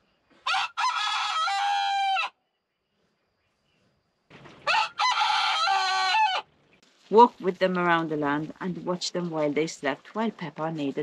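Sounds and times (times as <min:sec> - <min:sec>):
rooster crowing: 0:00.4 - 0:02.4, 0:04.6 - 0:06.5.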